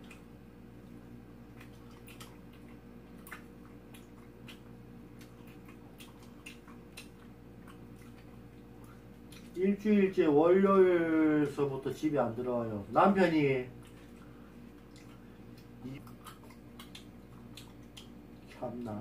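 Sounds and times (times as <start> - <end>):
person chewing: 0.0 - 9.6, 13.7 - 18.6
steady low hum: 0.0 - 19.0.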